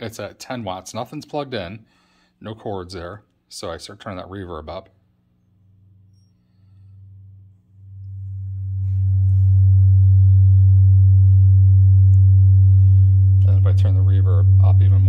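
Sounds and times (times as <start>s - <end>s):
guitar amp hum: 5.6s - 15.0s.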